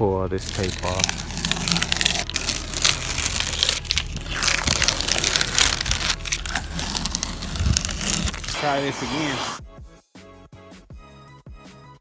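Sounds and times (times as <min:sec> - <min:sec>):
tape peeling off: 0:00.4 - 0:09.6.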